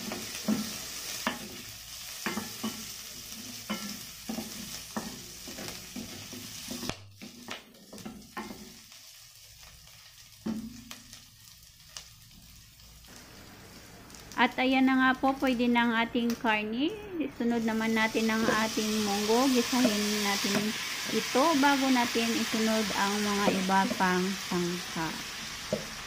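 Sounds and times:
food sizzling in oil: 0.0s - 26.0s
wooden spoon scraping a pot: 18.2s - 21.4s.

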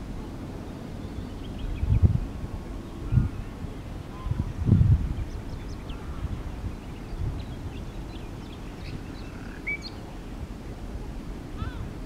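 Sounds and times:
wind rumbling on microphone: 0.0s - 12.0s
bird chirps and whistles: 9.6s - 10.0s.

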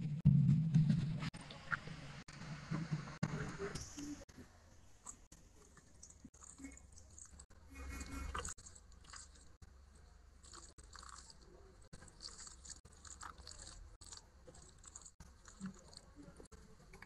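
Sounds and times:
fingers squishing rice: 4.9s - 17.0s.

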